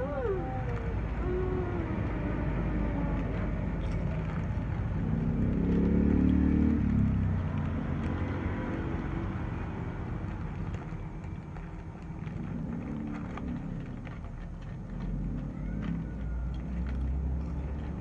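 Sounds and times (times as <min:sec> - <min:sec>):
vehicle engine passing by: 0:00.0 - 0:18.0.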